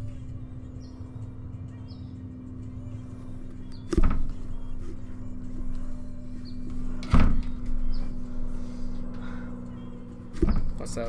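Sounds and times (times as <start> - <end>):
low hum: 0.0 - 11.0
thuds: 3.9 - 4.5, 7.0 - 7.8, 10.3 - 10.8.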